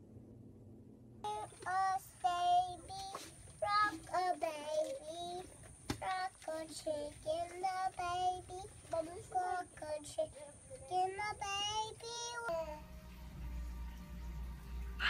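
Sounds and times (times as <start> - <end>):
faint low hum: 0.0 - 15.0
child singing: 1.3 - 12.8.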